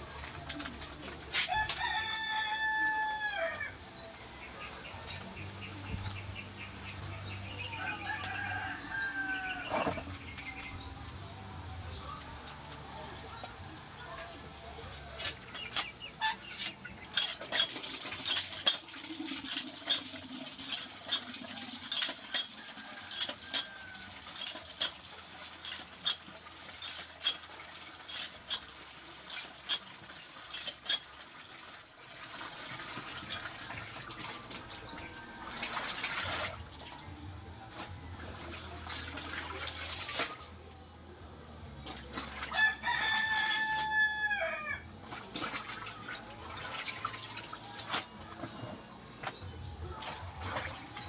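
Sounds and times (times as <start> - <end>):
hand pump metal clanks: 0.2 - 2.0, 14.8 - 40.4, 45.1 - 51.0
water splashing in basin: 15.3 - 40.6, 41.8 - 44.0, 45.0 - 48.6, 50.0 - 51.0
water gushing into basin: 17.2 - 37.1, 38.2 - 40.6, 45.0 - 48.1.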